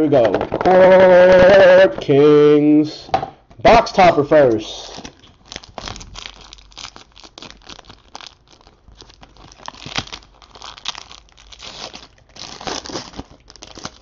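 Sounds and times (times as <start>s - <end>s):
foil wrapper crinkling and tearing: 4.8s - 14.0s.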